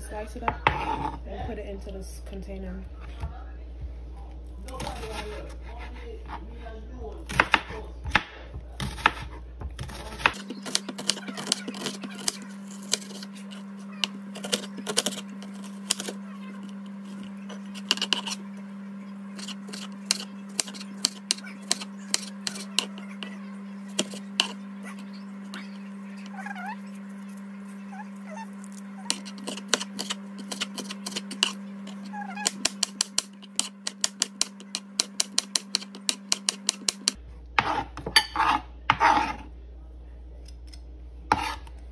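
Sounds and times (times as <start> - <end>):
knife chopping on cutting board: 32.4 - 39.4, 41.3 - 41.6.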